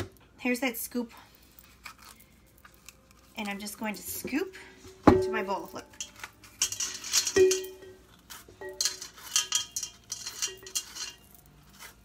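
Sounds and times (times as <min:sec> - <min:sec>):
metal bowl ringing: 0:05.2 - 0:11.3.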